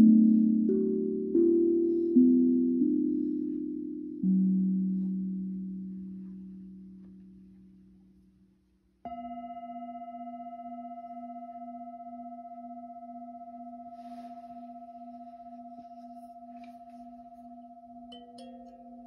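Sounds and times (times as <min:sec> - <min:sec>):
soft rustle: 0:03.0 - 0:08.6, 0:13.9 - 0:18.0
bell ringing with low tone: 0:09.1 - 0:19.0.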